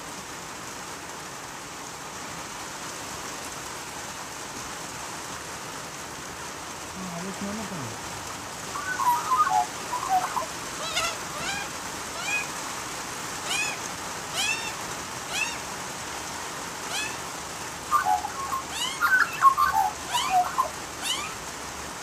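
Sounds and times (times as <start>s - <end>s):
steady rain: 0.0s - 22.0s
magpies warbling: 8.7s - 12.6s, 13.4s - 15.7s, 16.8s - 21.4s
short high bird calls: 8.7s - 12.6s, 13.4s - 15.7s, 16.9s - 21.4s.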